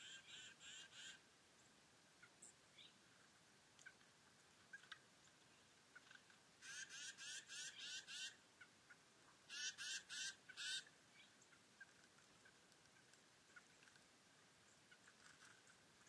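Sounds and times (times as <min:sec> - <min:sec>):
bird calling harsh notes: 0:06.6 - 0:08.4, 0:09.5 - 0:10.9.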